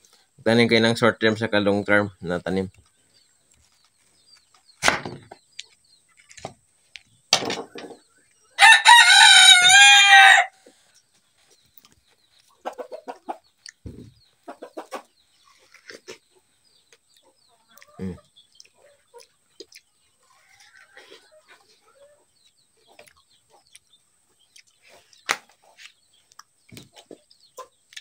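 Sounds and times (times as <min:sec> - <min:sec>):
rooster crowing: 0:08.6 - 0:10.6.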